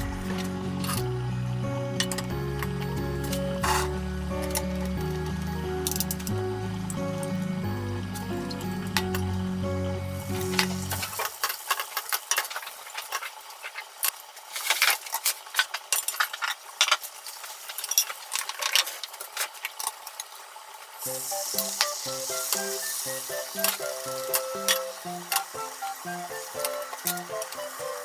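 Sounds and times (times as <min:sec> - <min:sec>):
background music: 0:00.0 - 0:11.2, 0:21.0 - 0:28.0
egg sizzling in a pan: 0:02.0 - 0:28.0.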